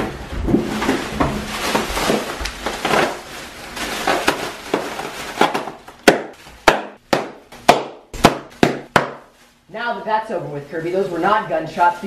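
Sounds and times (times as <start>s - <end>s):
bubble wrap crinkling: 0.0s - 12.0s
bubble wrap popping: 0.4s - 9.5s.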